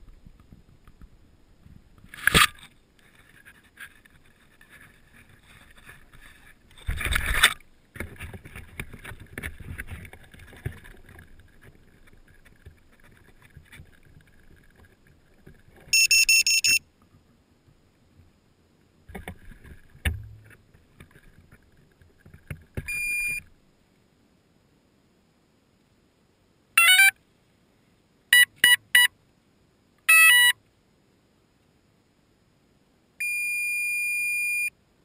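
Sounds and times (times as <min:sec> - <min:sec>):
camera handling bumps and rubbing: 0:00.0 - 0:16.0
high electronic beeps: 0:15.9 - 0:16.8, 0:22.9 - 0:23.4, 0:33.2 - 0:34.7.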